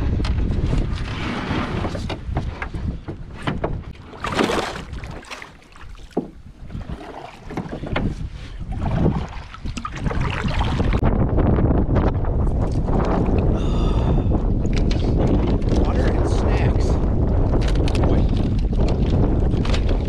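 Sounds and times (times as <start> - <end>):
wind rumble on microphone: 0.0 - 20.0
paddle strokes and splashing: 0.2 - 11.1, 17.5 - 20.0.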